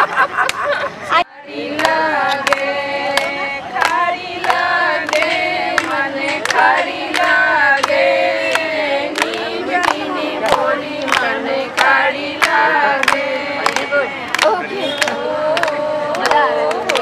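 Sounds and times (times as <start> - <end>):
women singing together: 1.2 - 17.0
hand-clapping keeping time: 1.6 - 17.0.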